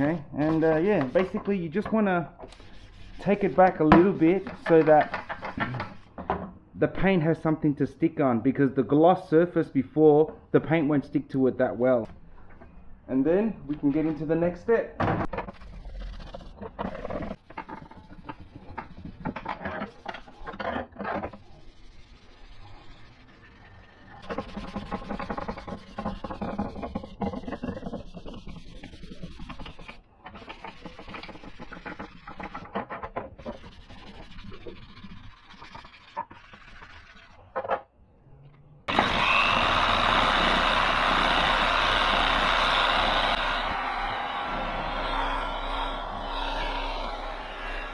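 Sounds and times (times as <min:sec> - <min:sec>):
sandpaper rubbing plastic: 0:00.0 - 0:01.8, 0:02.4 - 0:06.1, 0:15.4 - 0:20.6, 0:21.3 - 0:32.8, 0:33.4 - 0:37.5
orbital sander running: 0:38.9 - 0:47.9.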